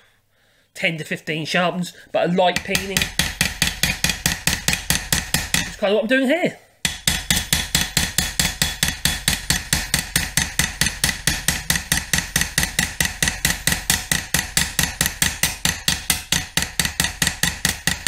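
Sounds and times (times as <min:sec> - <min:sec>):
hammer striking metal blade: 0:06.8 - 0:18.0.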